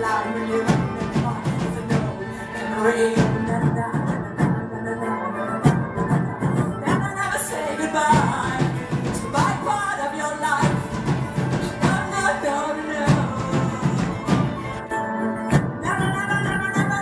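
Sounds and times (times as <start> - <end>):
flute melody: 0.0 - 17.0
person singing: 0.0 - 17.0
steady drum beat: 0.1 - 2.3, 8.1 - 10.0, 10.6 - 14.8.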